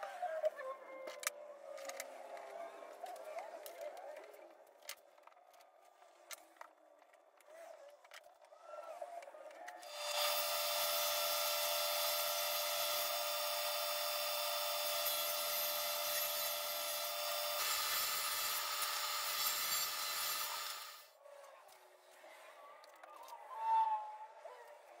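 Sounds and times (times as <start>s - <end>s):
table saw ripping wood: 9.8s - 21.0s.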